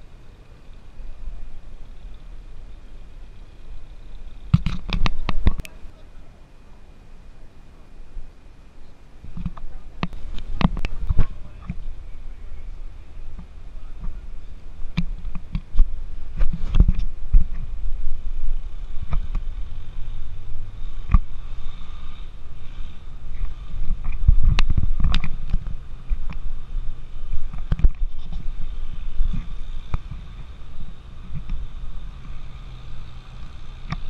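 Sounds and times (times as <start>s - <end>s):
wind buffeting microphone: 9.2s - 32.6s.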